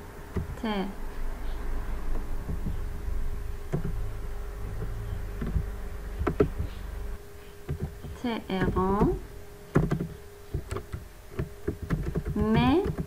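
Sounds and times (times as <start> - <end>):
low buzzing hum: 0.0 - 13.0
keyboard and mouse clicks: 0.3 - 0.6, 3.7 - 4.0, 4.8 - 6.8, 7.7 - 13.0.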